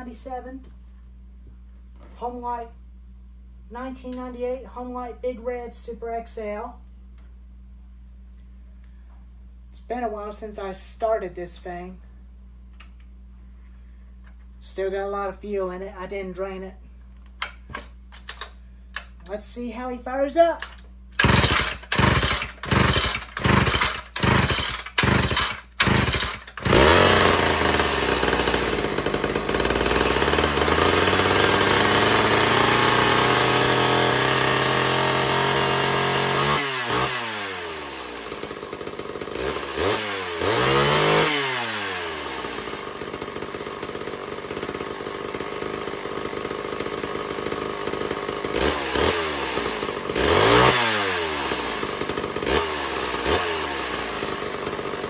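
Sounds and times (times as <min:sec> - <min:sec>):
starter cord pulls: 0:17.4 - 0:19.2, 0:20.6 - 0:32.3
chainsaw engine revving and idling: 0:21.2 - 0:55.0.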